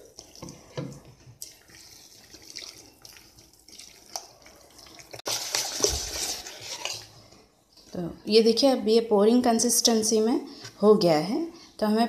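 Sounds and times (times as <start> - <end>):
hand squishing wet batter: 0.0 - 8.0.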